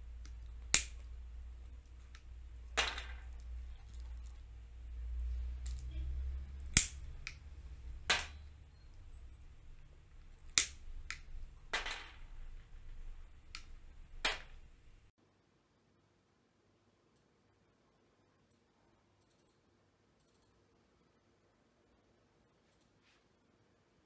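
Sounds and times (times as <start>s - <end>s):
low hum: 0.0s - 15.1s
pistachio shells cracking in pliers: 0.1s - 4.5s, 5.6s - 5.9s, 6.5s - 14.6s.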